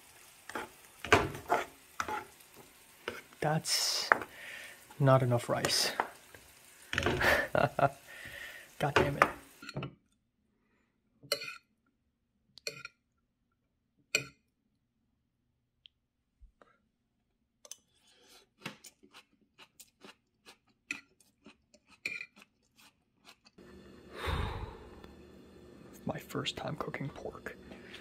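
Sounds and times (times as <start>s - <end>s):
close-up chewing: 18.6s - 23.6s.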